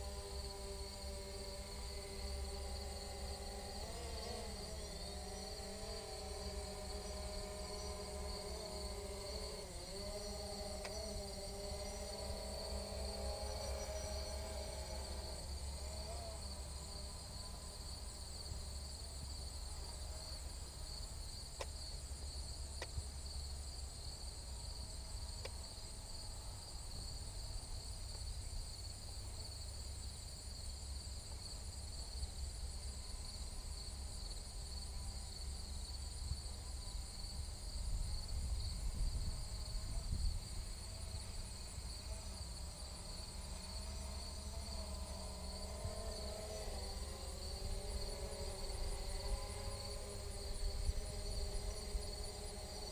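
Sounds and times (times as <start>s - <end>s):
insect chorus buzzing: 0.0s - 52.9s
wind rumble on microphone: 36.1s - 41.3s.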